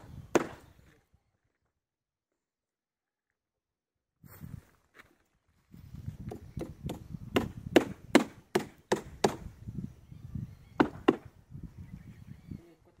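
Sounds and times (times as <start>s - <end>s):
sharp chopping strikes: 6.3s - 9.4s.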